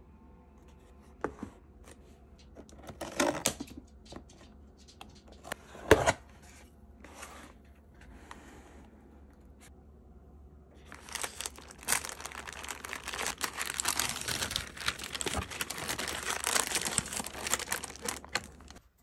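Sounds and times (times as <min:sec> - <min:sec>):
wrapping crinkling and rustling: 0:10.8 - 0:18.9.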